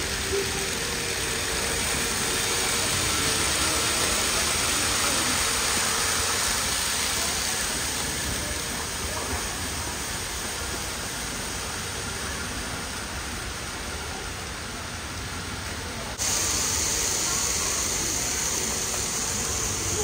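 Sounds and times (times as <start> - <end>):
steady background hiss: 0.0 - 20.0.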